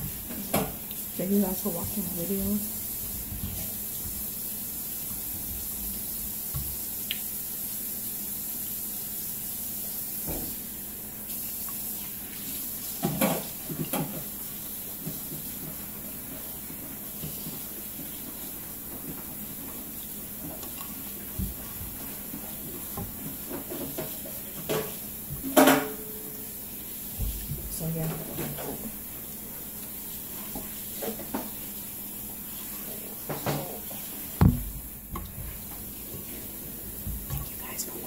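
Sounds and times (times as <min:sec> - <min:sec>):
steady hiss: 0:28.9 - 0:38.0.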